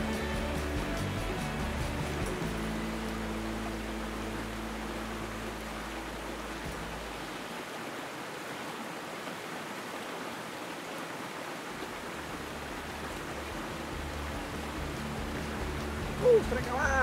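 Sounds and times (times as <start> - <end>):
river rushing over rocks: 0.0 - 17.0
low rumble: 12.3 - 17.0.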